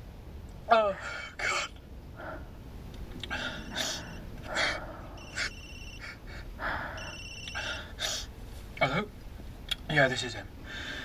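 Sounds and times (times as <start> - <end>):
heavy breathing: 1.0 - 2.6, 3.2 - 8.5, 10.6 - 11.0
phone electronic trill ringing: 3.6 - 8.2.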